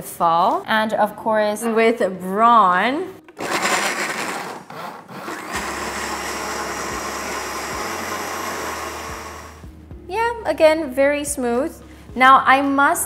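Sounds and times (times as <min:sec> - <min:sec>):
blender motor whirring: 0:03.3 - 0:09.6.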